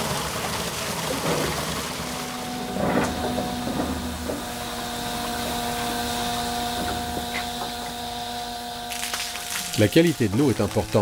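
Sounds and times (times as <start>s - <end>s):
water rushing into tank: 0.0s - 8.2s
faint steady hum: 2.0s - 11.0s.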